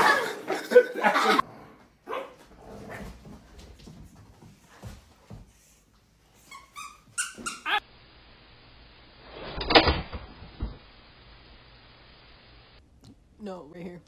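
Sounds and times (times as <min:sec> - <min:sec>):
dog whining and yipping: 0:06.4 - 0:07.8.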